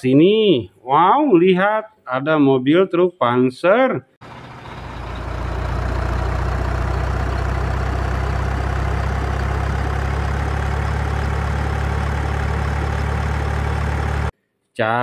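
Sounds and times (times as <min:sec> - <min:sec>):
diesel truck engine running: 0:04.2 - 0:14.3.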